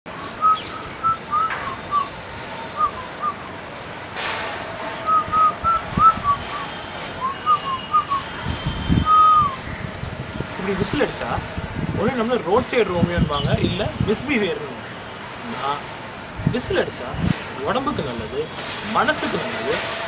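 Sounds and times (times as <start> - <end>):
man whistling a tune: 0.4 - 2.1, 2.8 - 3.4, 5.1 - 8.2, 8.8 - 9.6.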